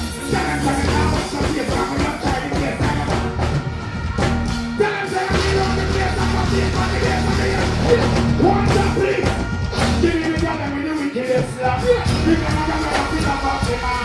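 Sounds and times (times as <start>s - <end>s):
dancehall music over loudspeakers: 0.0s - 14.0s
heavy bass line: 0.0s - 14.0s
performer's voice on microphone: 4.8s - 14.0s.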